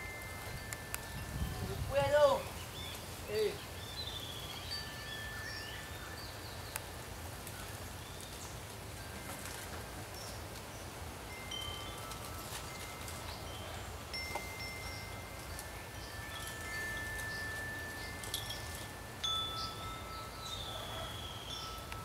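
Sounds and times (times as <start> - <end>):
chimes ringing: 0.0 - 2.5, 4.6 - 6.5, 11.2 - 22.0.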